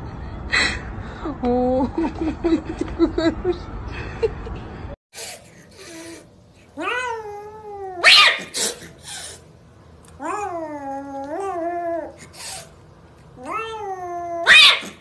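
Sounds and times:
kitten yowling: 0:06.8 - 0:08.8, 0:13.4 - 0:15.0
kitten hissing: 0:08.0 - 0:09.5.

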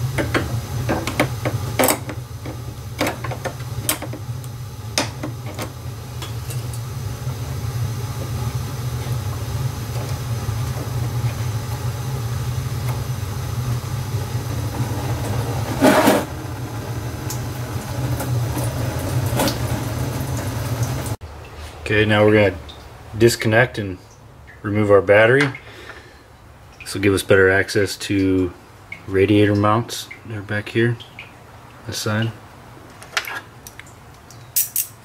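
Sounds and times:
steady low hum: 0:00.0 - 0:32.8
sharp clicks and knocks: 0:00.2 - 0:04.2.

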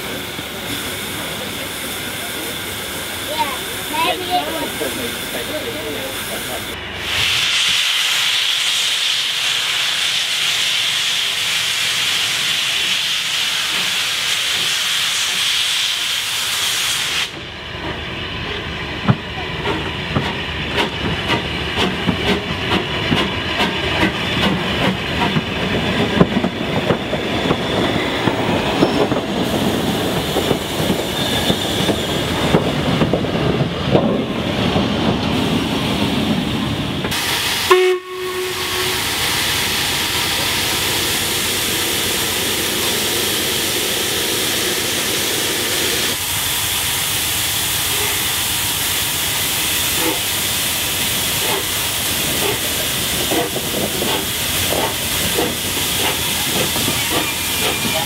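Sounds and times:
steam hiss: 0:00.0 - 0:17.5, 0:20.3 - 0:33.6, 0:34.3 - 0:58.0
steam locomotive rumble: 0:00.0 - 0:58.0
wheels clanking and clicking: 0:52.3 - 0:58.0.

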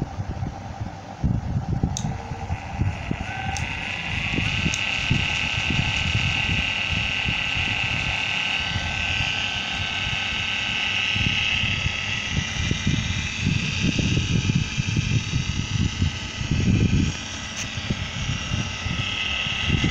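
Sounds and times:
irregular low rumble: 0:00.0 - 0:19.9
servo motor whine: 0:01.3 - 0:19.9.

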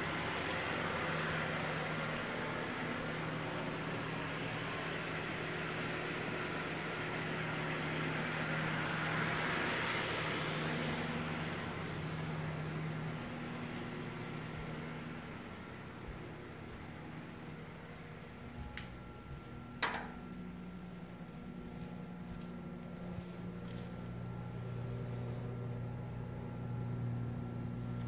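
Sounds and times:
low hum: 0:08.3 - 0:28.0.

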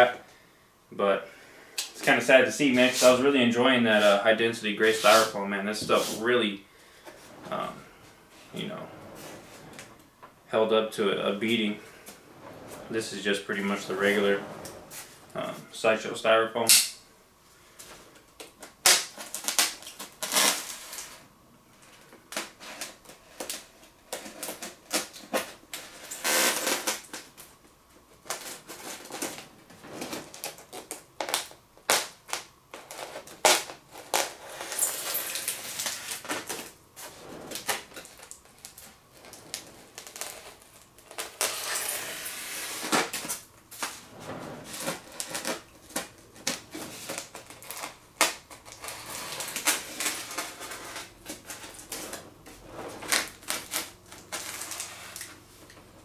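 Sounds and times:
styrofoam packaging crackling: 0:18.4 - 0:21.2, 0:28.2 - 0:44.0, 0:44.6 - 0:55.8
packaging rustling: 0:30.0 - 0:44.0, 0:44.6 - 0:55.8.

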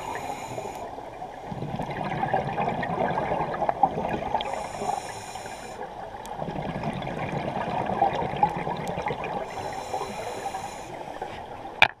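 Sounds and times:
hissing regulator inhale: 0:00.0 - 0:01.0, 0:04.4 - 0:05.9, 0:09.4 - 0:11.4
bubbling regulator exhale: 0:00.0 - 0:11.2.

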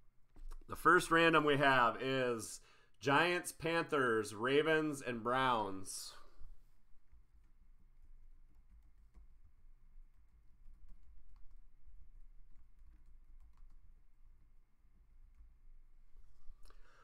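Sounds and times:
keyboard typing clicks: 0:12.5 - 0:14.0.

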